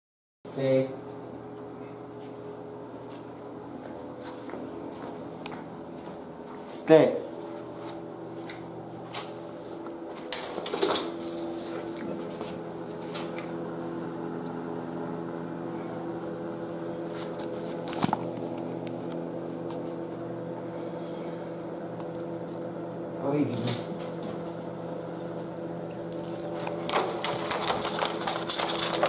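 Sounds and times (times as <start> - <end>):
steady machine hum: 0.5 - 29.0
food bowl clattering: 26.6 - 29.0.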